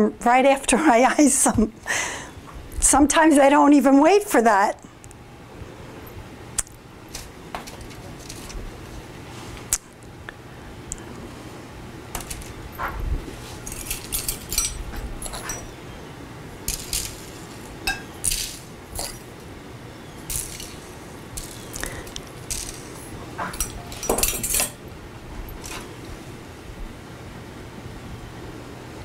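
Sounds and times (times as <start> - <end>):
utensil clinking on bowl and tray: 13.6 - 15.8, 16.7 - 19.3, 20.2 - 24.8.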